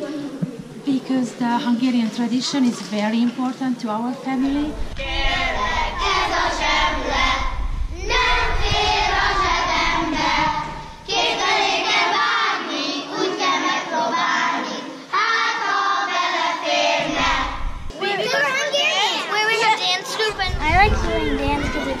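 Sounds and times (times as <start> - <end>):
children singing together: 5.0 - 17.7.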